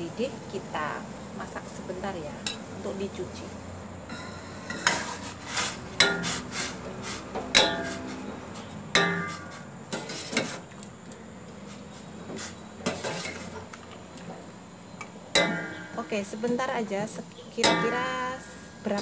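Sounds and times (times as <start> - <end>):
ladle clinking against metal pot: 6.0 - 6.4, 7.5 - 8.1, 15.3 - 16.0, 17.6 - 18.1.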